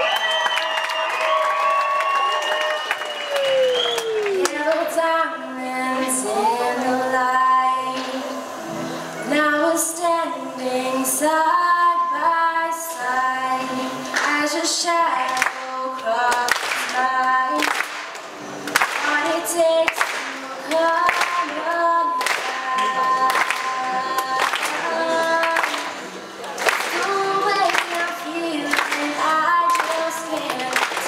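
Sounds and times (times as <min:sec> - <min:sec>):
girl singing: 0:04.3 - 0:08.5, 0:09.3 - 0:17.8, 0:19.0 - 0:26.0, 0:26.7 - 0:31.0.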